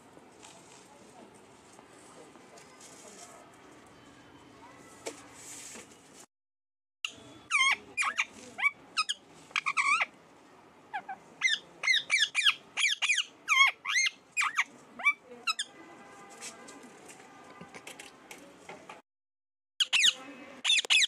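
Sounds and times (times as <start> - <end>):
parakeet shrill chirps: 7.1 - 10.1, 10.9 - 15.7, 19.8 - 21.0.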